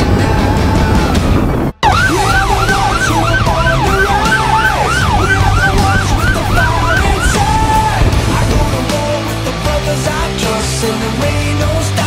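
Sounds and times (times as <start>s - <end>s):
emergency siren yelping: 1.8s - 8.2s
low engine rumble: 1.8s - 9.5s.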